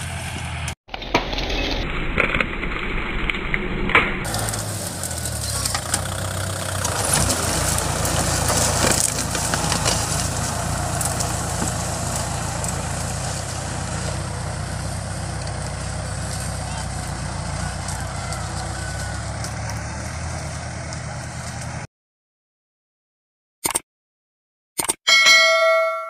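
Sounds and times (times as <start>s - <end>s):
tractor diesel engine running: 0.0s - 0.8s, 1.9s - 21.9s
branches snapping: 2.1s - 14.2s
foliage rustling: 4.3s - 21.8s.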